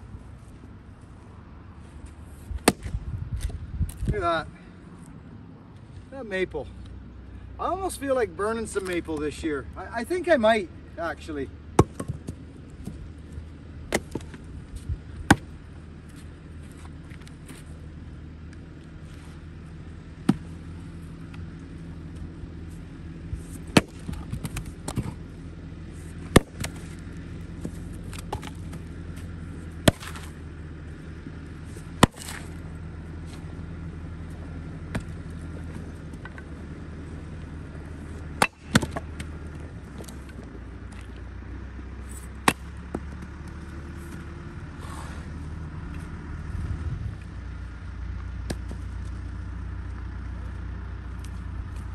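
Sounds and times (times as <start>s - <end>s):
low machine hum: 0.0s - 51.9s
axe chopping firewood: 2.5s - 4.2s, 11.7s - 13.0s, 13.9s - 17.7s, 20.2s - 21.5s, 23.4s - 25.3s, 26.1s - 30.5s, 31.5s - 33.5s, 34.3s - 41.2s, 42.0s - 45.2s, 48.4s - 48.9s.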